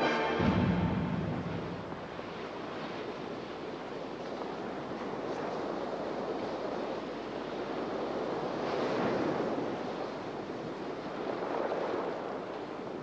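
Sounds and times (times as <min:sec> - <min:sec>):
waves breaking: 0:00.0 - 0:13.0
wind: 0:00.0 - 0:13.0.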